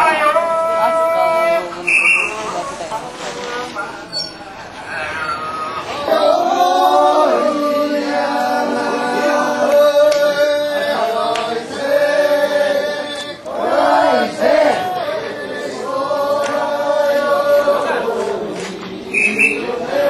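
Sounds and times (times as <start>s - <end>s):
group chanting in unison: 5.8s - 20.0s.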